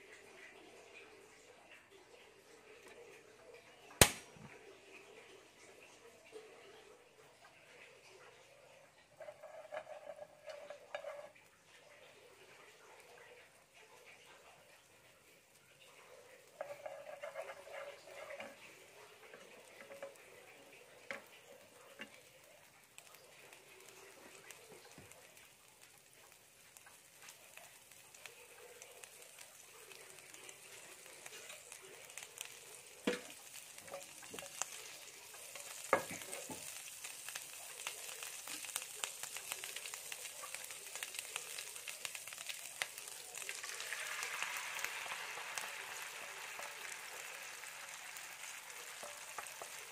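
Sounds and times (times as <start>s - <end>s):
oil sizzling in frying pan: 0.0s - 1.8s, 2.5s - 49.9s
chopsticks tapping on pan: 33.0s - 34.8s, 35.4s - 36.8s.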